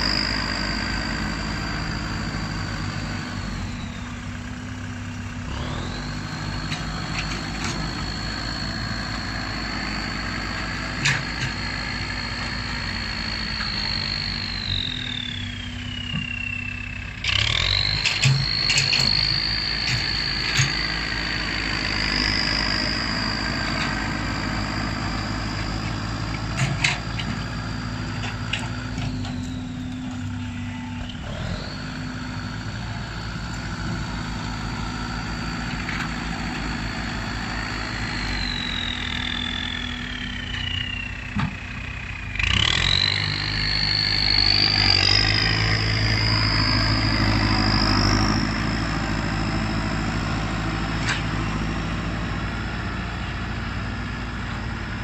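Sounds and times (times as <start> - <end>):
tractor diesel engine running: 0.0 - 55.0
turbo whistle: 5.9 - 26.6, 34.6 - 49.9.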